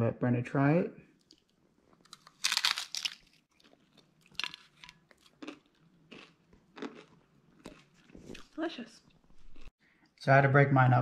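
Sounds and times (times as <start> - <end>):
crunching fried tostada shell: 1.2 - 8.2.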